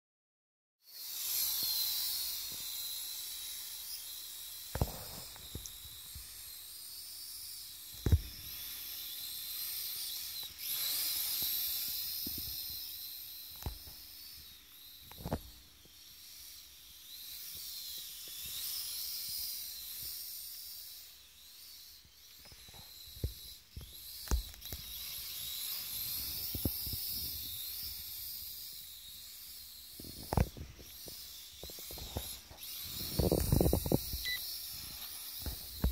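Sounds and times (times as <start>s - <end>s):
toy drone motors whining: 0.8s - 35.9s.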